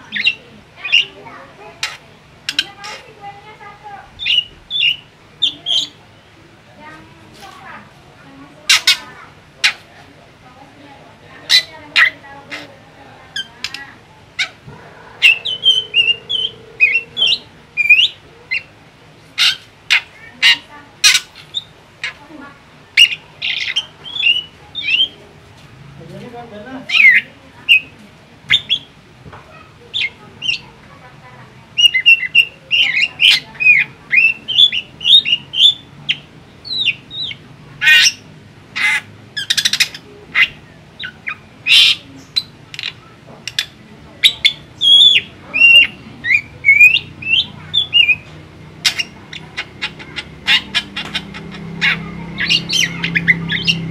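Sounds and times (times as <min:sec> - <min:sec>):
bird harsh calls: 0:00.0 - 0:06.0, 0:08.6 - 0:09.8, 0:11.4 - 0:22.3, 0:23.0 - 0:25.2, 0:26.9 - 0:30.8, 0:31.8 - 0:53.9
bird whistling varied notes: 0:14.8 - 0:18.7.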